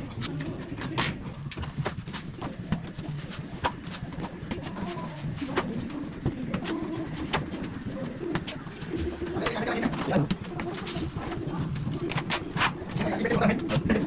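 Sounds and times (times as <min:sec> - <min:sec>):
pigeons cooing: 0:00.0 - 0:14.0.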